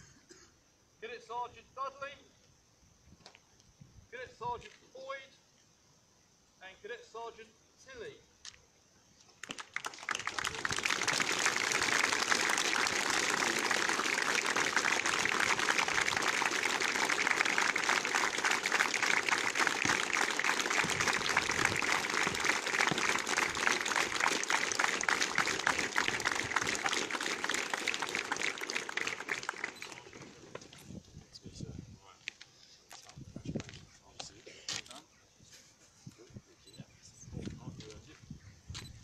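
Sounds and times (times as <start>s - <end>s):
crowd applauding: 9.4s - 30.4s.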